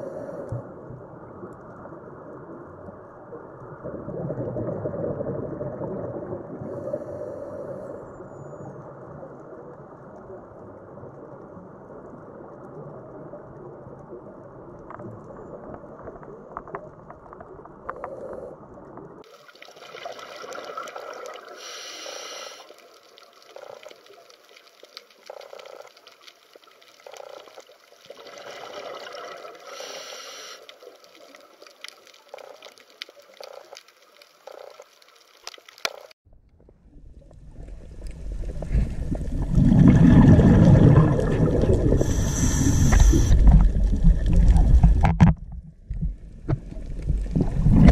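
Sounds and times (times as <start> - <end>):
underwater hiss and gurgling: 0.0 - 0.8, 6.2 - 8.6, 17.9 - 36.1, 37.7 - 44.9
low rumble of water: 0.0 - 21.9, 30.7 - 47.9
rushes of water noise: 0.0 - 36.2, 36.9 - 47.9
faint clicks: 29.8 - 38.2.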